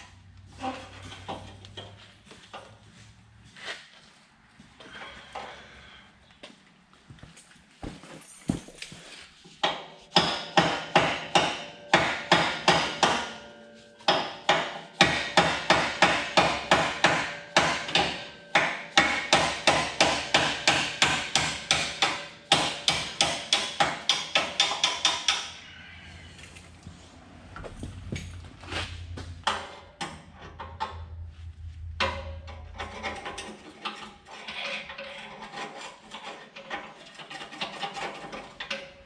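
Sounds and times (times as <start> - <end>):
hammer striking metal: 9.6 - 25.6.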